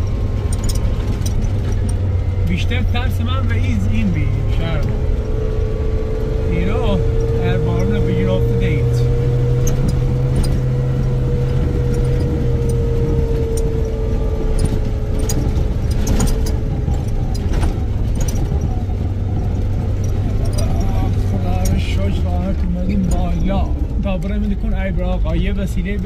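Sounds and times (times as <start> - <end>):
vehicle engine humming: 0.0 - 26.0
light ticks: 19.4 - 23.3.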